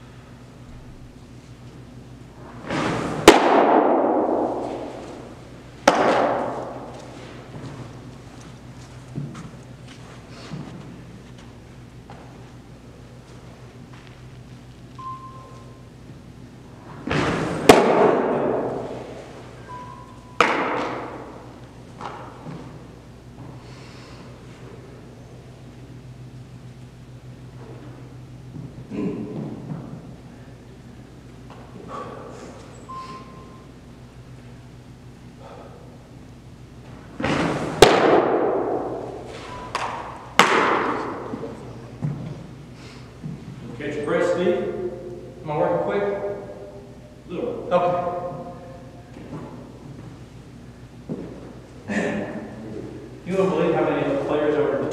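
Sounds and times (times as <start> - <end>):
baseball smacking into mitt: 2.7 - 5.2, 5.8 - 6.9, 17.0 - 19.1, 20.4 - 21.4, 37.2 - 41.4.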